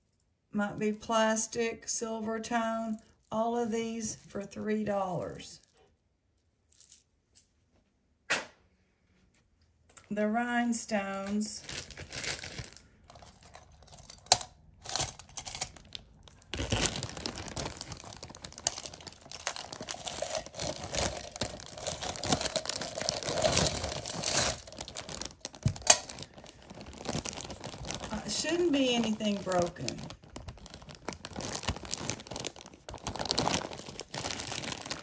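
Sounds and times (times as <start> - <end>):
plastic bag crinkling: 11.2 - 35.0.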